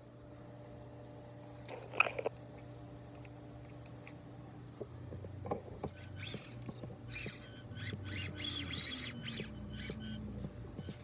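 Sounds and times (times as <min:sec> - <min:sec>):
small electric motor humming: 0:05.1 - 0:11.0.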